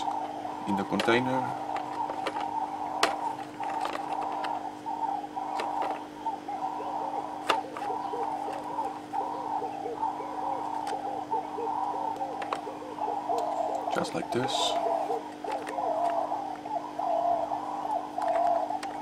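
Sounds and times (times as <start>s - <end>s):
bird cooing: 0.0s - 19.0s
plastic pots clicking: 0.8s - 4.5s.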